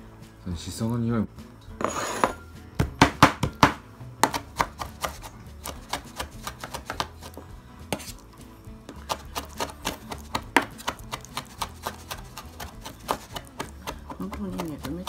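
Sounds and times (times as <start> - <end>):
knife chopping on plastic board: 2.8 - 8.2, 8.9 - 15.0.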